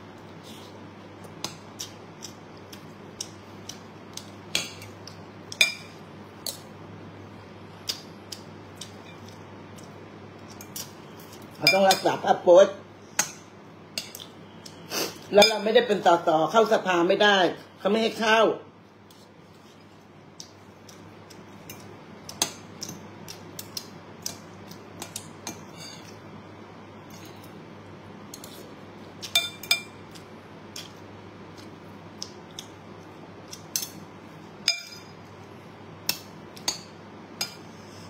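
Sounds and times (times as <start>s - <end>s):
cutlery clinking on ceramic bowl: 29.2s - 30.0s, 34.6s - 35.1s.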